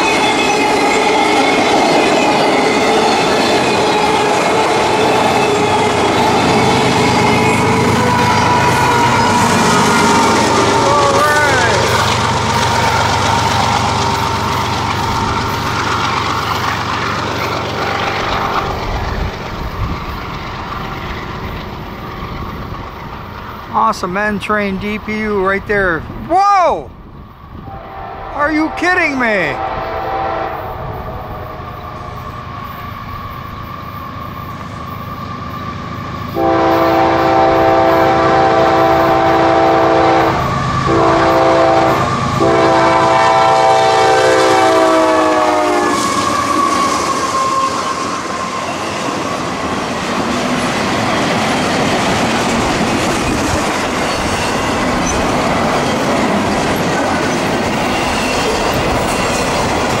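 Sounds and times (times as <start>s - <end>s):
train rumble and wheel clatter: 0.0s - 60.0s
locomotive air horn: 27.7s - 30.9s, 36.3s - 48.8s.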